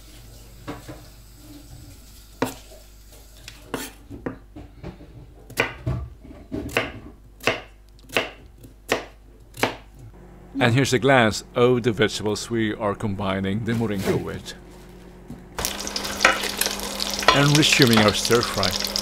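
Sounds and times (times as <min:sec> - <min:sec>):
knife chopping on cutting board: 0:05.5 - 0:06.0, 0:06.6 - 0:09.9.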